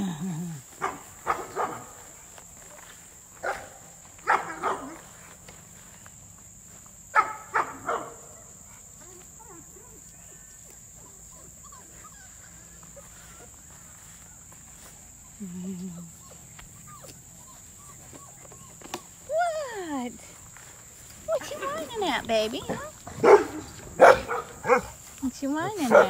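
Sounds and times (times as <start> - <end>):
puppies barking: 0.8 - 2.2, 3.4 - 5.4, 7.1 - 8.9, 9.5 - 15.4, 16.2 - 20.0, 21.3 - 26.0
puppies yipping: 7.2 - 20.1.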